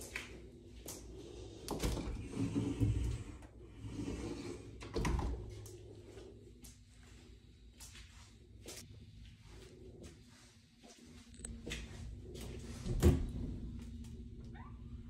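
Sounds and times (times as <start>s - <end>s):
door panels sliding and rubbing: 1.8s - 5.5s.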